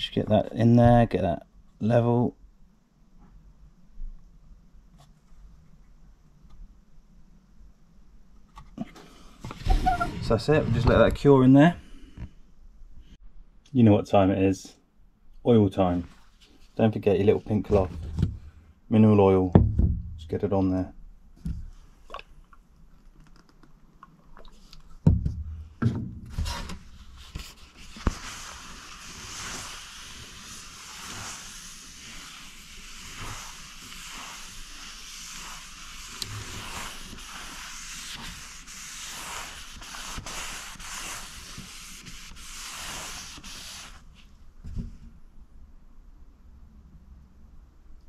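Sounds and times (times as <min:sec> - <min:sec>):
knocks: 0:19.6 - 0:20.2
cloth rubbing on wood: 0:26.4 - 0:44.3.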